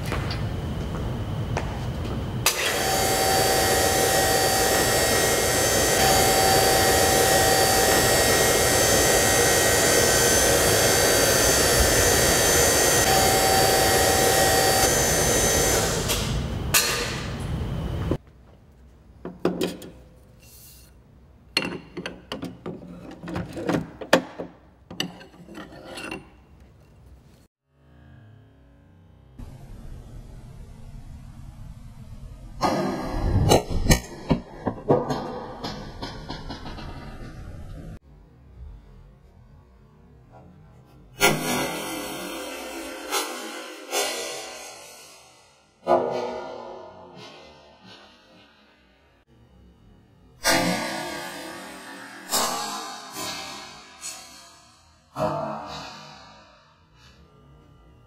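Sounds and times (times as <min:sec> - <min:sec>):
machine noise with thin whine: 0:00.0 - 0:18.2, 0:27.9 - 0:44.4.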